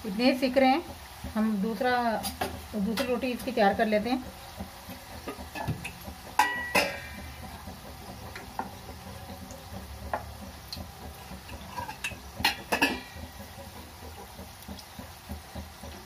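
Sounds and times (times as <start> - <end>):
chips deep-frying in oil: 0.0 - 16.0
steel kitchenware clinking: 5.3 - 7.3, 11.6 - 13.2.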